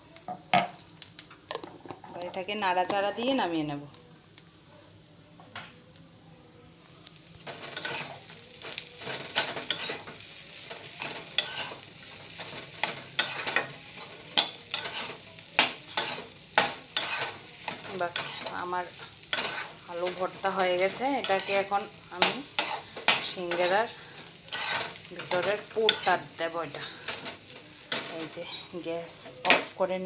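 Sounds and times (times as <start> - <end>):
light sizzle: 0.0 - 30.0
spatula scraping a pan: 7.5 - 29.7.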